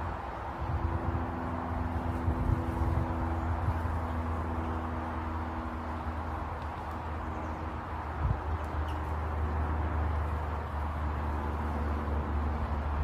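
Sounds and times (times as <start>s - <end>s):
low outdoor rumble: 0.0s - 13.0s
small birds chirping: 6.6s - 9.6s.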